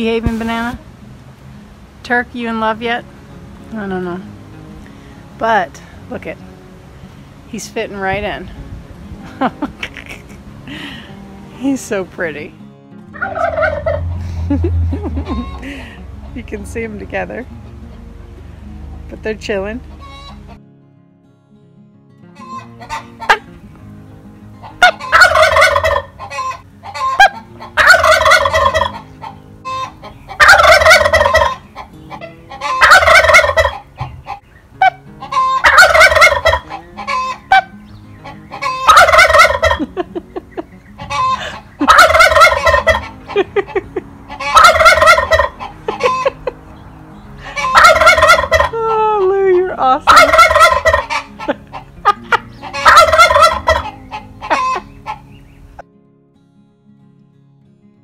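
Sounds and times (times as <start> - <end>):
turkey gobbling: 13.2 - 14.3, 15.1 - 15.7, 20.0 - 20.5, 22.4 - 23.4, 24.7 - 46.6, 47.5 - 48.8, 50.1 - 55.4.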